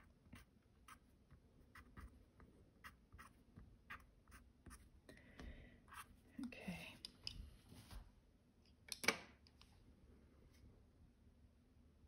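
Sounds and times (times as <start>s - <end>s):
pencil scratching on paper: 0.0s - 4.9s.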